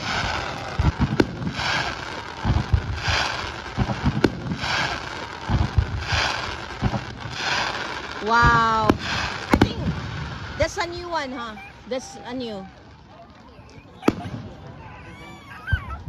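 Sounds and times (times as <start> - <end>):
fireworks booming and cracking: 0.0 - 16.0
fireworks crackling hiss: 0.0 - 16.0.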